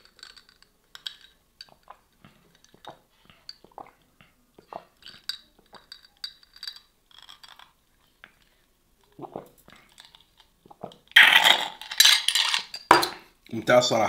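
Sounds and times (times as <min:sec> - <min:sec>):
ice cubes clinking in glass: 0:00.0 - 0:01.8, 0:11.2 - 0:13.2.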